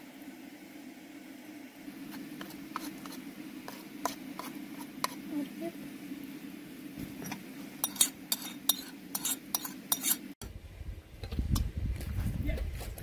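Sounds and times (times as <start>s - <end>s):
metal spoon clinking on plate and pan: 7.2s - 10.2s.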